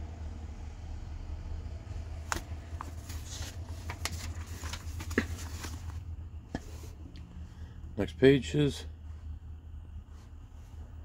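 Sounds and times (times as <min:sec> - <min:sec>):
steady low hum: 0:00.0 - 0:11.0
book pages flipping: 0:02.2 - 0:07.0.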